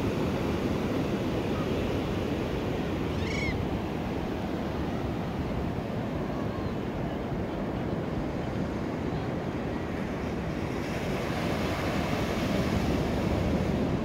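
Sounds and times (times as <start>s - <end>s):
bird call: 3.1s - 3.6s
surf washing up a sand beach: 3.7s - 14.0s.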